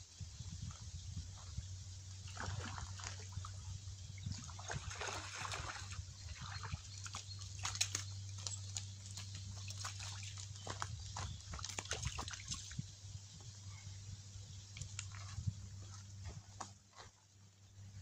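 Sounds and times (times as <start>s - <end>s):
water splashing: 2.2s - 3.6s, 4.2s - 8.0s, 11.6s - 12.8s.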